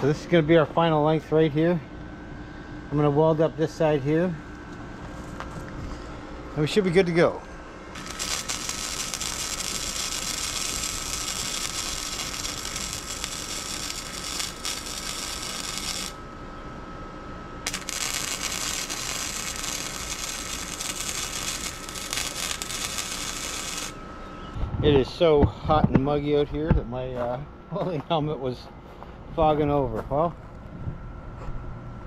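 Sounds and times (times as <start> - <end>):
faint high whine: 0.0 - 32.0
welding arc sizzling: 6.5 - 16.4, 17.6 - 24.0.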